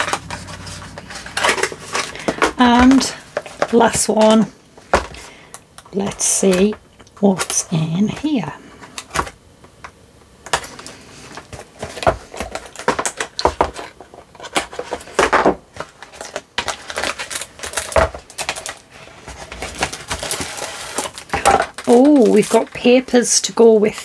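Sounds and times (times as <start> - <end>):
card box clicks and rustles: 0.0 - 5.3, 10.4 - 23.0.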